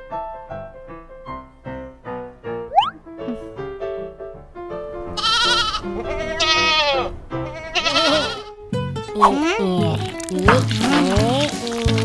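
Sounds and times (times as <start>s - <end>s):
sheep bleating: 5.2s - 8.6s.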